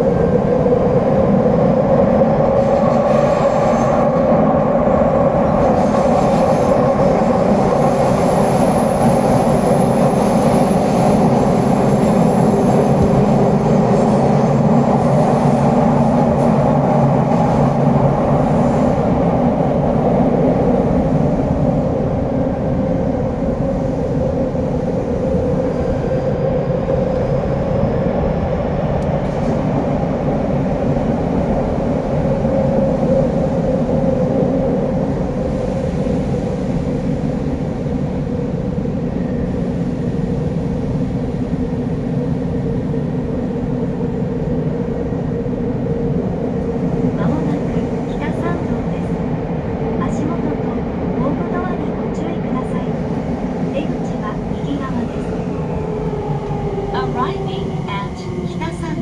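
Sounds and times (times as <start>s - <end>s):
subway train rumbling: 0.0s - 59.0s.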